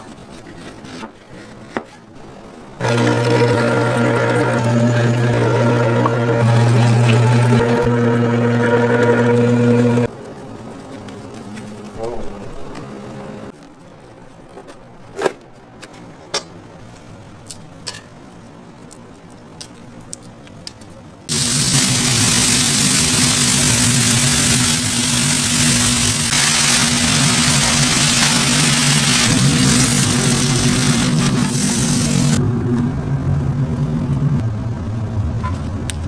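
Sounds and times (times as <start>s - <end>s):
low machinery hum: 2.6s - 13.5s, 21.3s - 36.0s
loud steady frying hiss: 21.3s - 32.4s.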